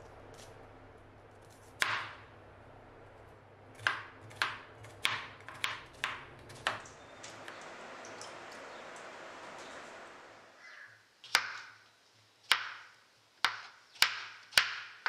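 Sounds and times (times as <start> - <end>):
knife chopping on wooden board: 1.8 - 2.2, 3.8 - 6.8, 12.5 - 12.8, 13.4 - 15.0.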